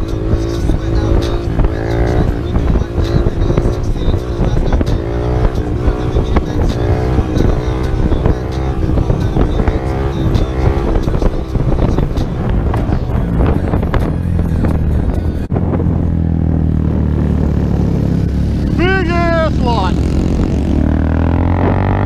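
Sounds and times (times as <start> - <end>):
minibike engine revving through gears: 0.0 - 14.8, 19.7 - 22.0
wind rushing over microphone: 0.0 - 22.0.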